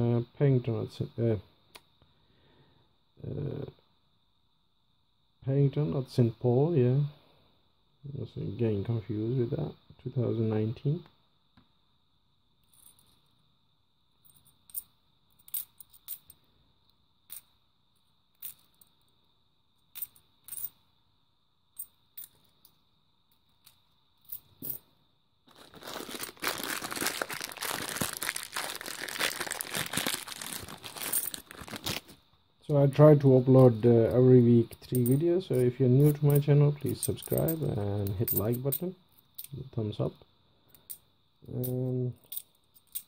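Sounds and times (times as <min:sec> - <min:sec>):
coins clicking together: 0:14.3 - 0:16.4, 0:19.9 - 0:20.7, 0:31.1 - 0:31.4
plastic coin bag crinkling: 0:25.5 - 0:32.2.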